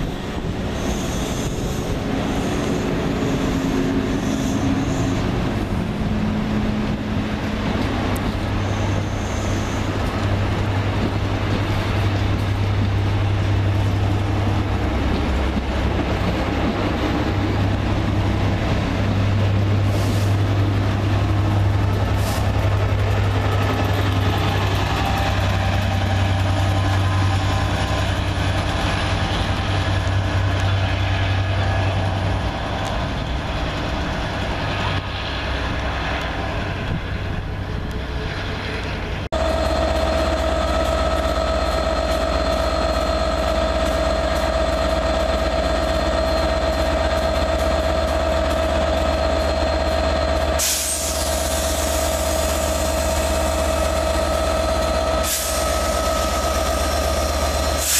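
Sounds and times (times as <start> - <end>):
diesel locomotive idling: 0.0 - 57.9
diesel locomotive rumbling past: 0.0 - 57.9
air hiss: 50.6 - 52.8, 55.2 - 57.9.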